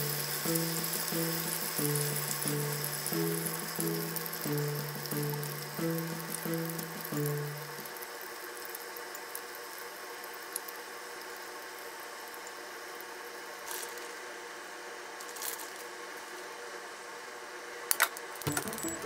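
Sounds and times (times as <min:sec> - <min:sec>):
chicken sizzling in a frying pan: 0:00.0 - 0:14.4.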